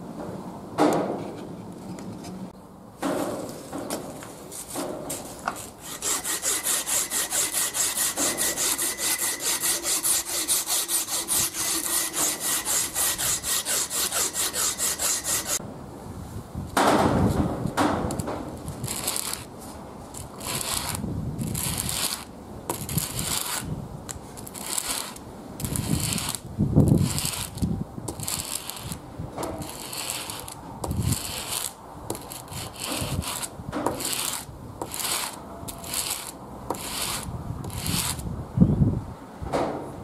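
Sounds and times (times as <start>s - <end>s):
screwdriver scraping on sandpaper: 5.5s - 15.6s, 18.7s - 19.5s, 20.1s - 23.7s, 24.4s - 29.0s, 29.6s - 38.3s.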